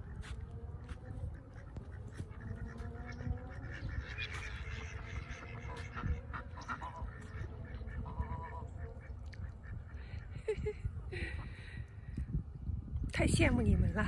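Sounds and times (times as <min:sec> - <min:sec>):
geese calling: 0:00.0 - 0:10.4
ducks quacking: 0:00.0 - 0:10.8.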